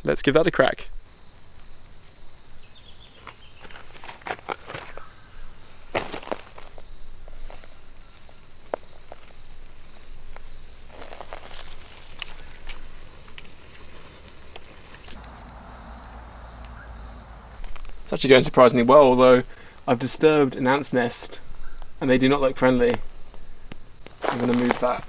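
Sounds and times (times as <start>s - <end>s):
insects droning: 0.0s - 25.0s
footsteps on dry ground: 3.2s - 15.6s, 23.7s - 25.0s.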